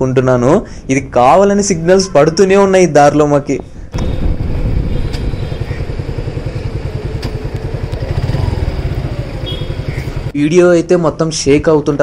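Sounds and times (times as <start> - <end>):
motorcycle engine idling: 4.0 - 10.4.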